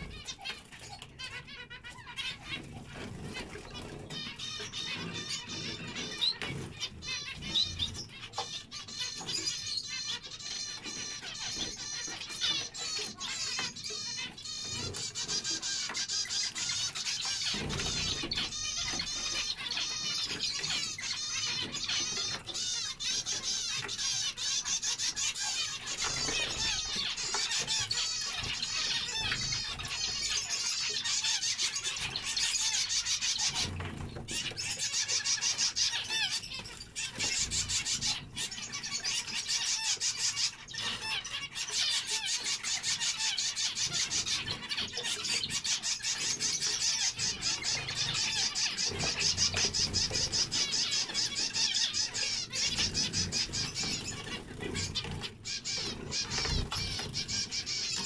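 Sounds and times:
finches chirping: 0.0s - 58.0s.

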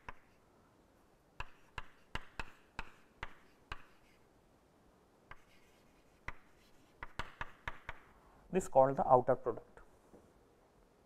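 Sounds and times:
chalk tapping on chalkboard: 0.0s - 0.4s, 1.4s - 4.2s, 5.3s - 8.1s.

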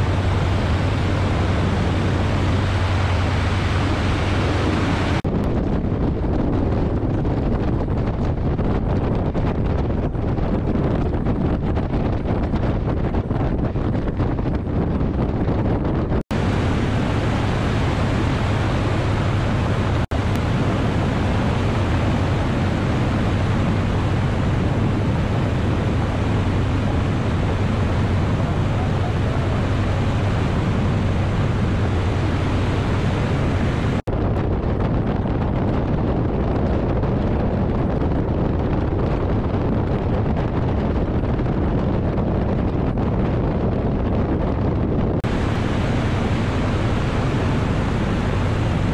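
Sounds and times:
propeller plane engine running: 0.0s - 48.9s
wind buffeting microphone: 0.0s - 48.9s.

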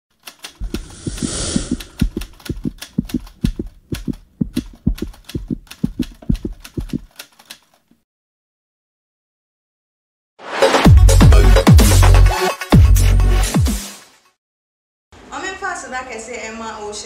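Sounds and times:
whoosh: 0.6s - 2.1s
typewriter-like clicks with thuds: 2.0s - 7.7s.

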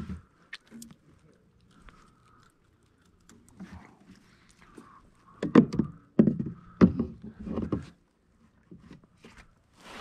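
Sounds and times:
knocks and thumps on plastic kayak: 5.4s - 8.0s.

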